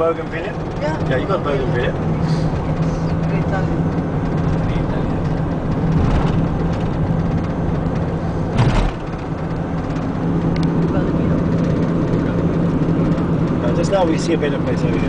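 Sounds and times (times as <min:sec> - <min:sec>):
road noise: 0:00.0 - 0:15.0
vehicle engine hum: 0:00.0 - 0:15.0
short thump: 0:05.9 - 0:06.9, 0:08.5 - 0:09.3.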